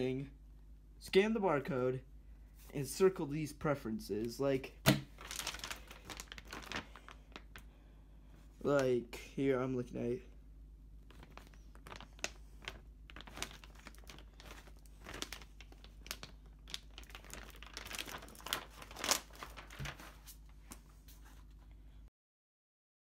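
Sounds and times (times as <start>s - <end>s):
plastic packaging crinkling: 4.9s - 7.7s, 11.0s - 21.6s.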